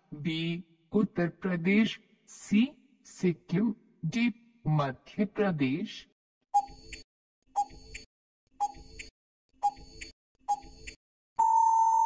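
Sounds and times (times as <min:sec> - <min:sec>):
timer ticks with blips: 0:06.6 - 0:07.0, 0:07.6 - 0:11.0
long steady beep: 0:11.4 - 0:12.0.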